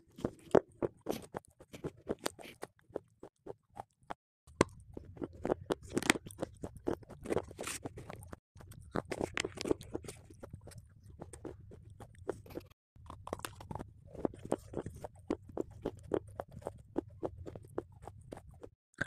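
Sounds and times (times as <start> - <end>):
wet mouth sounds: 0.2 - 19.0
chocolate bar snapping and crunching: 13.0 - 17.1.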